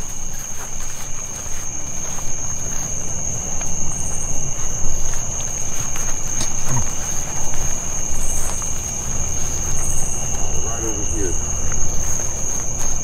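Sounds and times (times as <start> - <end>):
night insects trilling: 0.0 - 13.0.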